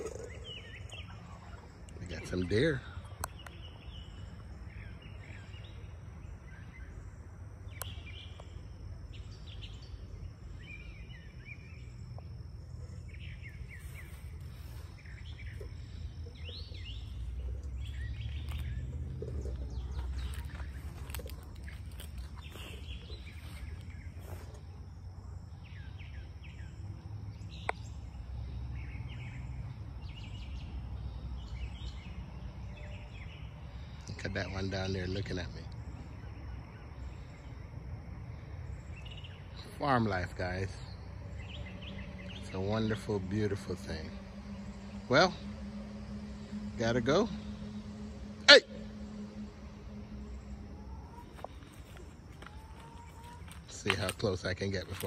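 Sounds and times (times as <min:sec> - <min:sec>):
birds chirping and singing: 0:00.0 - 0:55.0
steady low rumble: 0:00.0 - 0:55.0.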